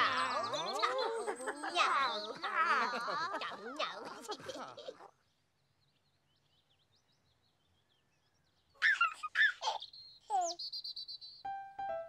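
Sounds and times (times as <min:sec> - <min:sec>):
baby giggling: 0:00.0 - 0:05.1, 0:08.8 - 0:10.6
faint bird chirps: 0:05.1 - 0:12.0.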